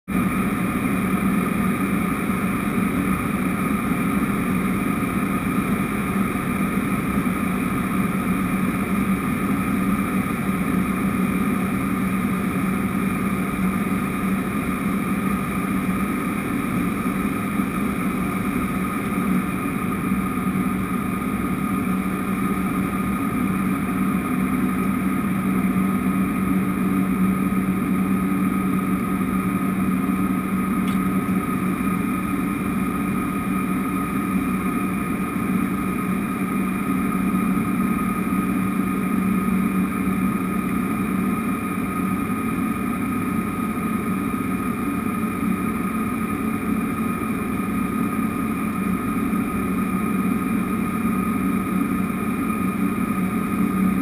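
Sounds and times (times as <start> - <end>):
low propeller hum: 0.0 - 54.0
turbine whine: 0.0 - 54.0.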